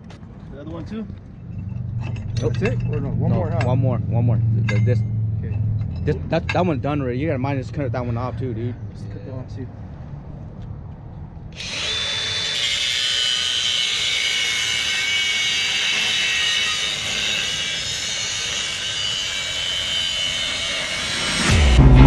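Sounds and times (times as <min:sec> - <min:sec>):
angle grinder cutting steel: 0:11.6 - 0:21.6.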